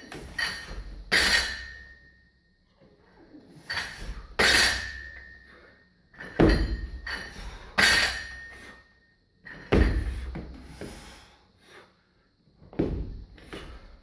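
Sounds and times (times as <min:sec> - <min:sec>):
barbell plates clanking: 0:00.1 - 0:02.1, 0:03.6 - 0:05.4, 0:06.1 - 0:08.7.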